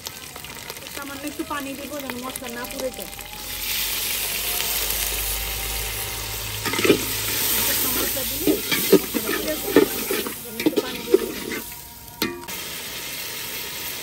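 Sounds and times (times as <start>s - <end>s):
spices sizzling in hot oil: 0.0s - 14.0s
metal spatula scraping a pot: 6.6s - 12.4s.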